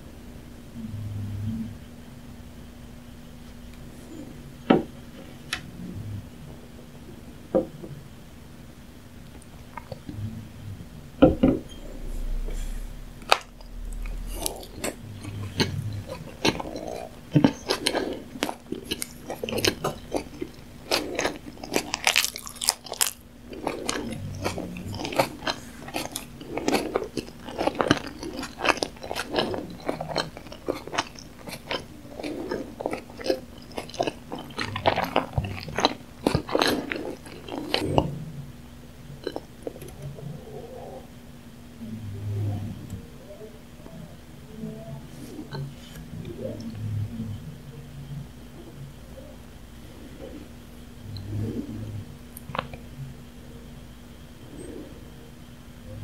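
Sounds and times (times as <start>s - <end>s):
faint steady hum: 0.0s - 56.0s
wet chewing mouth sounds: 9.3s - 10.3s, 11.7s - 38.1s, 39.2s - 40.0s.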